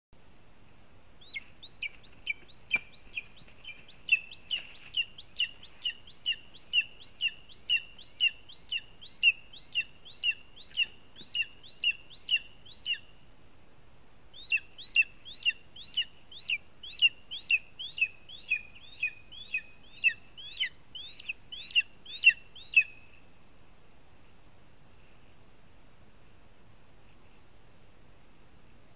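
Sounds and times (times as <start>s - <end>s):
eagle yelping calls: 1.2s - 13.1s, 14.3s - 23.0s.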